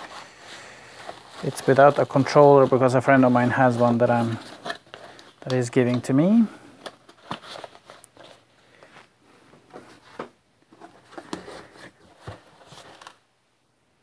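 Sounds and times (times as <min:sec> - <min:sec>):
cardboard scraping and rustling: 0:00.0 - 0:05.9, 0:09.7 - 0:13.2.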